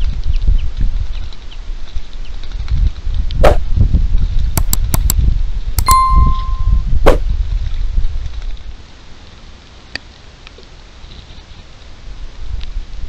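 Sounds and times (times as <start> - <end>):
mouse clicks: 4.6 - 5.2
electronic bell ding: 5.8 - 6.9.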